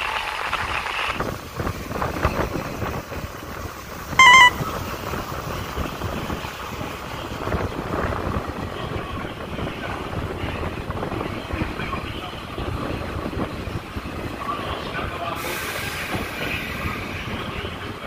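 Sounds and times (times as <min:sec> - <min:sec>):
electric train running: 0:00.0 - 0:18.0
brief wavering tone: 0:04.2 - 0:04.7.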